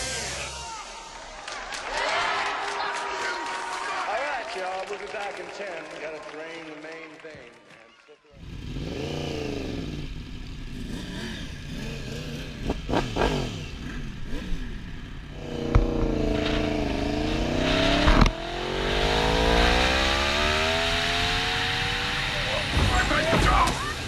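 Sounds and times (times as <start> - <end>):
motorcycle engine accelerating: 8.4 - 24.0.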